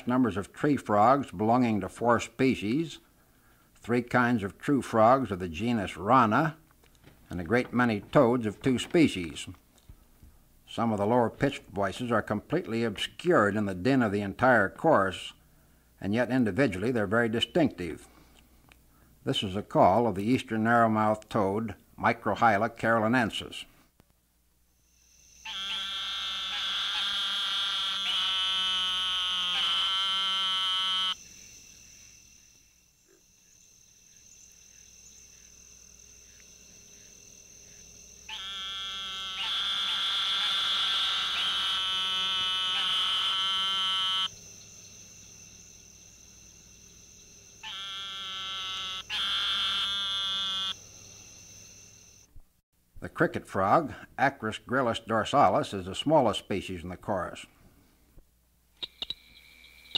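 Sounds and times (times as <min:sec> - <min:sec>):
toad buzzing calls: 0:24.8 - 0:52.3, 0:58.8 - 0:59.9.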